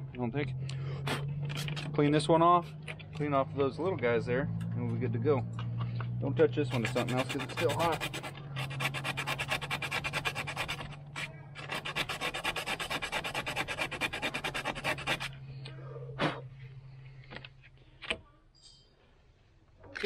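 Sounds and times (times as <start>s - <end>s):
brush scrubbing metal terminals: 6.6s - 15.4s.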